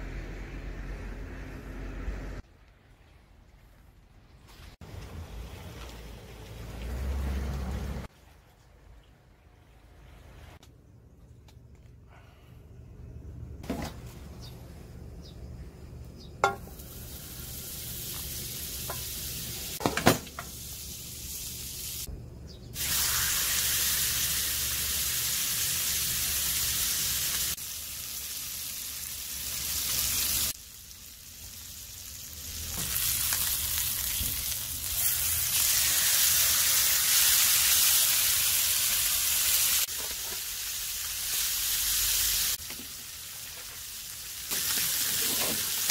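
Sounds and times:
steak sizzling in a pan: 22.8s - 45.9s.

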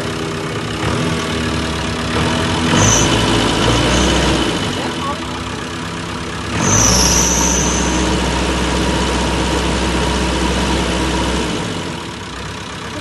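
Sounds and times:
diesel engine revving: 0.0s - 13.0s
brief high whine: 6.6s - 8.4s.

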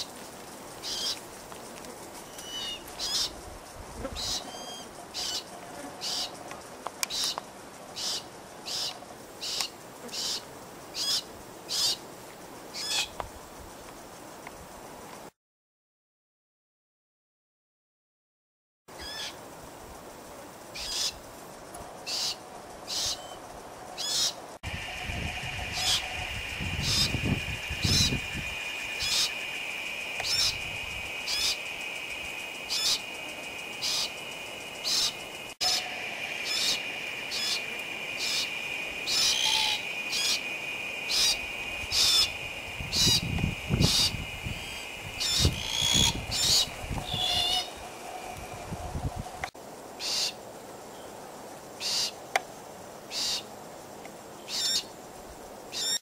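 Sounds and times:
cockatoo calls: 2.3s - 3.4s, 4.0s - 6.4s, 8.0s - 12.0s, 19.0s - 19.4s, 22.1s - 23.4s, 24.0s - 29.5s, 30.2s - 31.6s, 32.7s - 33.1s, 33.8s - 34.2s, 34.8s - 40.4s, 41.0s - 49.4s
high-pitched hum: 24.6s - 49.5s.

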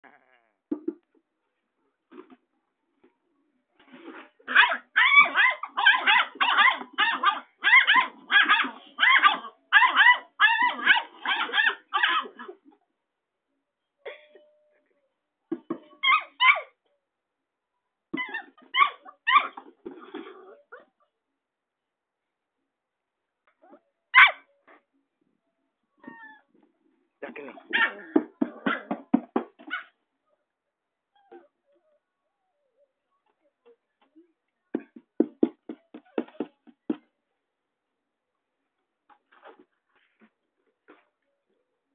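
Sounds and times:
puppy barking: 4.5s - 12.6s, 23.6s - 24.5s, 27.6s - 29.0s.

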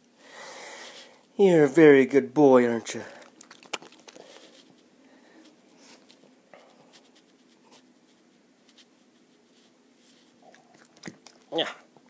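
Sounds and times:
faint rustling: 3.0s - 11.5s.

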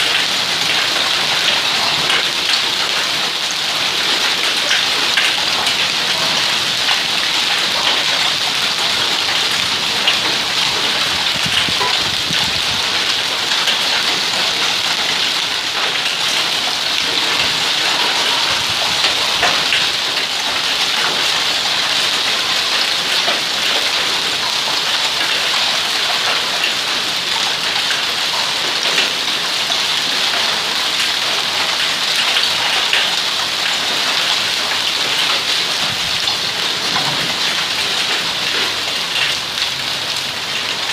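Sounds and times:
hailstones clattering on paving: 0.0s - 40.8s
rain hissing: 0.4s - 25.2s.

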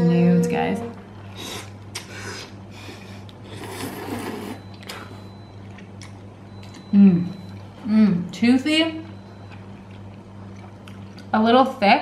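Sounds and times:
person slurping noodles: 3.5s - 4.6s.

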